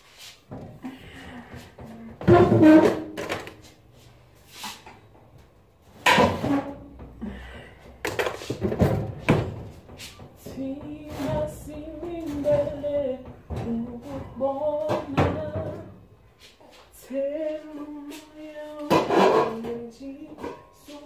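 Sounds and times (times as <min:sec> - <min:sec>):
kitchen knocks and thuds: 0:06.0 - 0:07.2, 0:08.0 - 0:16.0.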